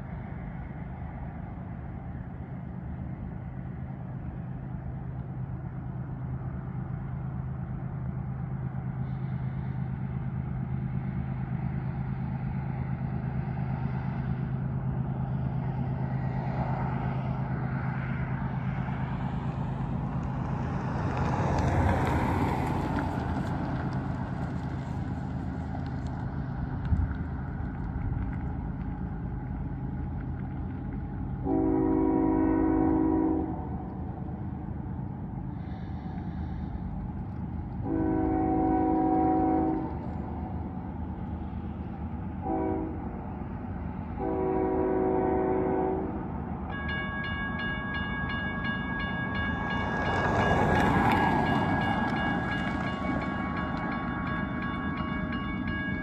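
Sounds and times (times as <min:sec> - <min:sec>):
car passing: 0:12.3 - 0:33.8, 0:47.6 - 0:56.0
locomotive air horn blasts: 0:31.4 - 0:33.8, 0:37.8 - 0:40.0, 0:42.4 - 0:43.1, 0:44.2 - 0:46.2.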